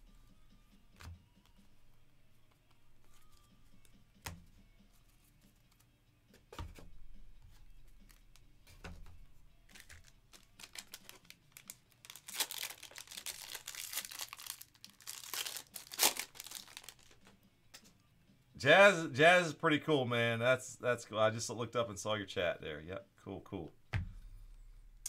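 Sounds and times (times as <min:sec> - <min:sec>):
foil wrapper crinkling and tearing: 0:09.7 - 0:17.3.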